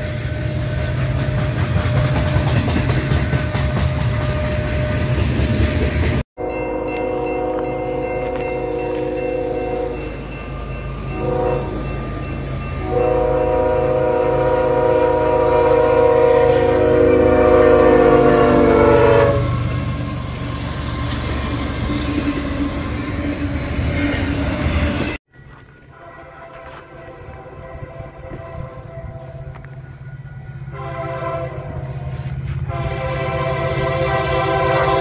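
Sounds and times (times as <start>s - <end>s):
freight train rumbling past: 0.0s - 35.0s
locomotive horn blasts: 6.4s - 10.1s, 11.1s - 11.9s, 12.8s - 19.6s, 25.9s - 29.7s, 30.7s - 35.0s.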